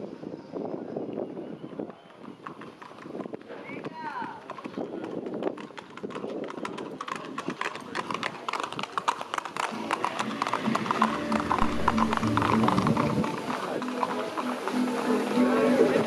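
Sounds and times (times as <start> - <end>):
hooves clip-clopping on asphalt: 0.9 - 16.0
background music: 9.7 - 16.0.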